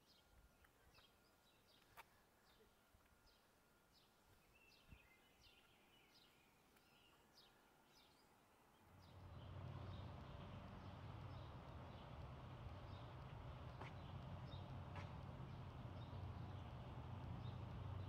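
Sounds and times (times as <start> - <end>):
birds chirping: 0.0 - 18.0
low rumble: 9.0 - 18.0.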